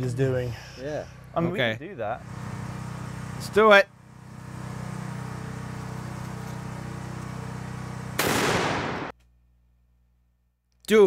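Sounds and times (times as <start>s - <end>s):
rifle shot: 8.2s - 9.2s.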